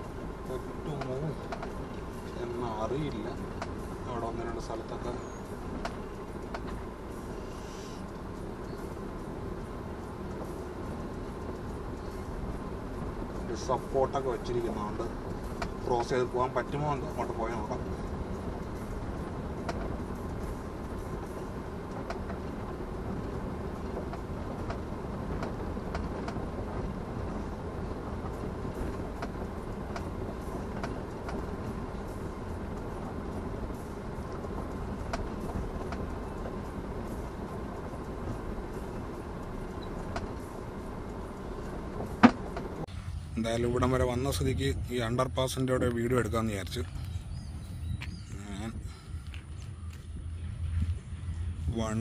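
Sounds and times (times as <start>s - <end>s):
road and engine rumble in car: 0.0s - 52.0s
light knocks and rattles: 0.7s - 7.2s, 8.1s - 42.9s.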